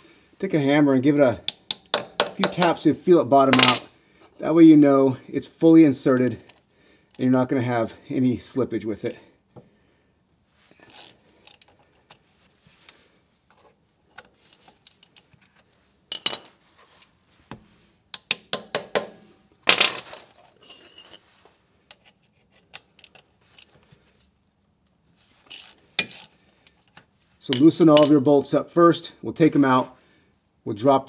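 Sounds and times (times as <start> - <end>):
hammer tapping metal: 1.5 - 2.7, 18.1 - 19.3.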